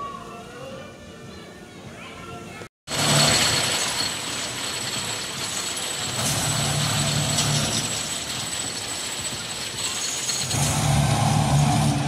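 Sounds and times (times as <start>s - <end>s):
roller coaster chain lift clattering: 2.9s - 12.0s.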